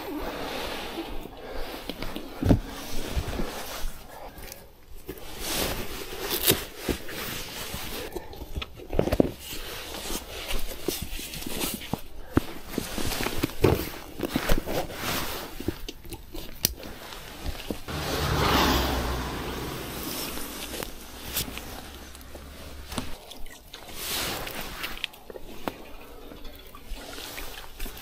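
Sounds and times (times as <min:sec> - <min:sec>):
low rumble: 0:17.9 - 0:23.1.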